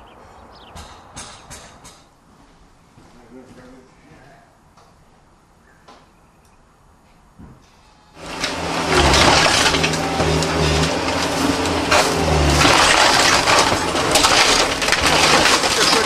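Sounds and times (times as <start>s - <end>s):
loader engine under load: 8.2s - 16.0s
wood cracking and splintering: 8.2s - 16.0s.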